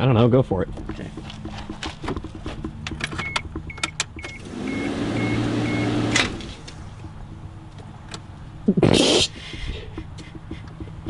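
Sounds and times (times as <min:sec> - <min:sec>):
car starter motor whirring: 0:02.8 - 0:07.1
warning chime beeping: 0:03.2 - 0:06.0.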